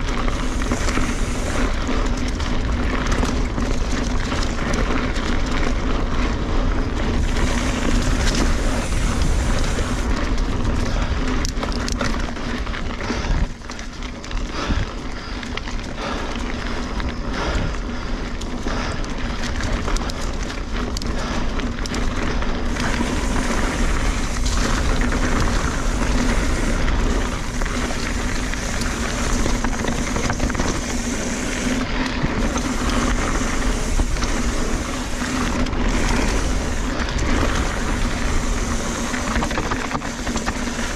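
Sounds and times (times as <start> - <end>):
bike knocking and rattling: 0.0 - 40.9
bike tyres on dirt and leaves: 0.0 - 40.9
wind rush over microphone: 6.8 - 11.4, 22.4 - 40.9.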